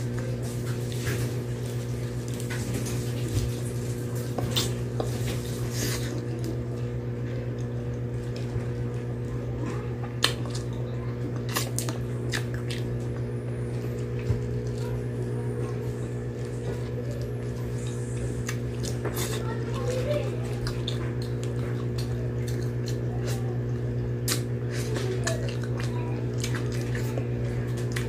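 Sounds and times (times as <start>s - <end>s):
steady low hum: 0.0s - 28.0s
mouth chewing: 9.6s - 28.0s.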